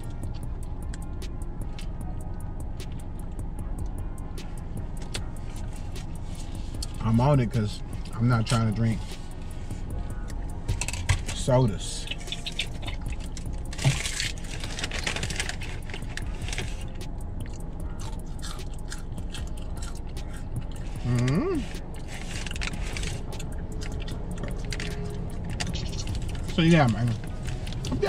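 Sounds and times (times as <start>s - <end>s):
low rumble: 0.0s - 28.0s
person chewing fries: 12.0s - 28.0s
person humming: 21.0s - 21.8s.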